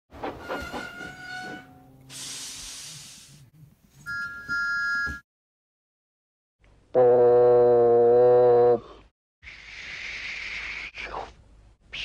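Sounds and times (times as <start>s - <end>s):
steam hiss: 2.1s - 3.4s.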